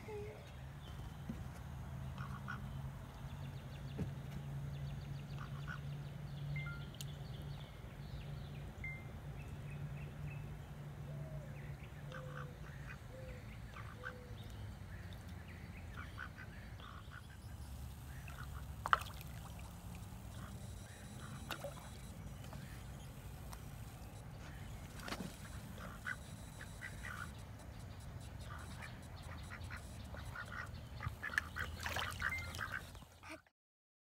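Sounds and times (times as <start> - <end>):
low steady hum: 4.8 - 33.4
ducks quacking: 15.9 - 27.7, 28.3 - 33.5.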